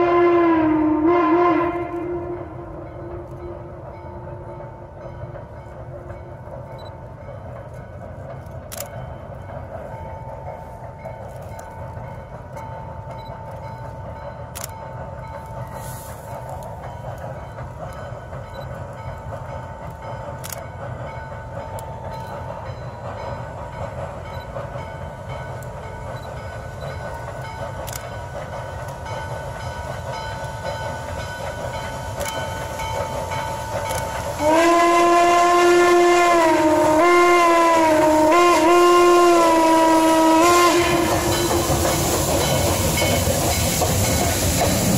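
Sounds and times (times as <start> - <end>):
steam whistle blowing: 0.0 - 3.8, 34.3 - 43.2
steam locomotive rumbling: 0.0 - 44.9.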